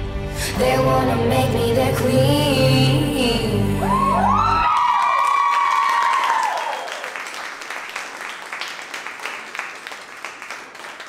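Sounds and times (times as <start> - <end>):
audience cheering with whoops: 3.8 - 7.3
audience clapping: 4.3 - 11.0.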